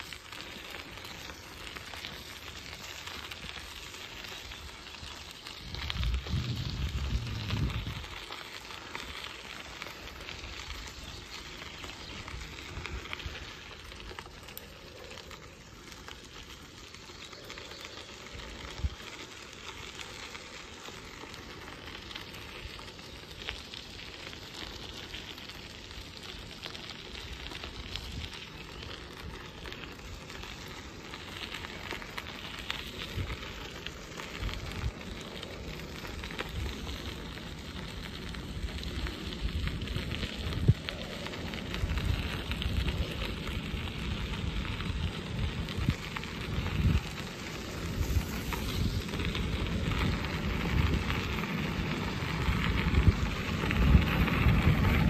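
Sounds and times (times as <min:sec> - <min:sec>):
bicycle tyres on gravel: 0:00.0 - 0:55.0
wind rumbling on microphone: 0:00.0 - 0:55.0.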